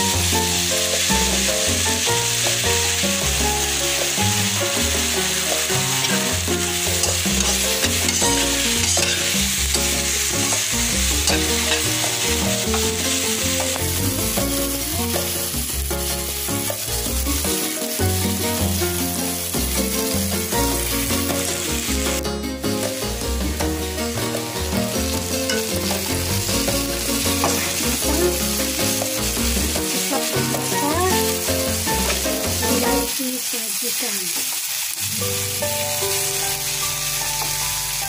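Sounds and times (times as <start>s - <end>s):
background music: 0.0s - 33.1s, 35.0s - 38.0s
food sizzling in a wok: 0.0s - 38.0s
metal spatula scraping: 5.8s - 13.7s.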